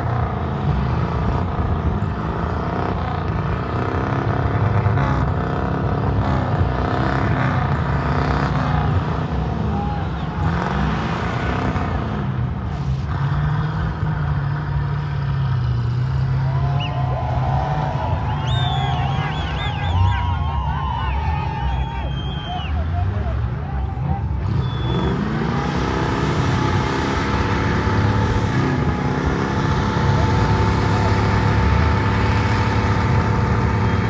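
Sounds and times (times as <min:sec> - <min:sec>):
off-road vehicle engine revving: 0:00.0 - 0:34.0
people's voices: 0:16.3 - 0:34.0.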